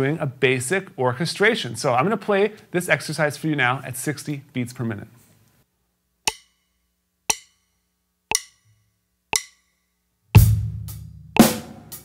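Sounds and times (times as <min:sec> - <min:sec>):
drum kit groove: 0:08.3 - 0:08.6, 0:10.4 - 0:12.0
count-in clicks: 0:08.3 - 0:08.7, 0:09.3 - 0:09.7.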